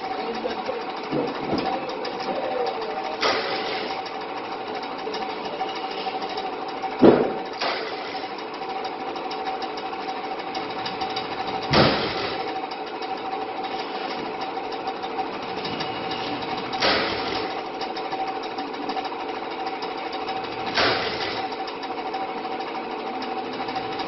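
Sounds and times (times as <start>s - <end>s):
fast even ticking: 0.0s - 24.0s
machinery humming: 0.0s - 24.0s
loud thumps: 7.0s - 8.2s, 11.7s - 12.5s.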